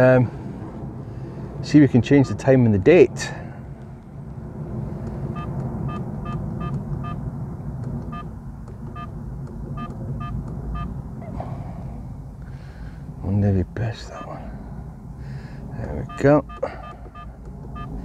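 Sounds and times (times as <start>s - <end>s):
steady low rumble: 0.0s - 18.0s
short electronic beeps: 2.2s - 2.5s, 5.4s - 7.2s, 9.8s - 11.0s, 16.0s - 18.0s.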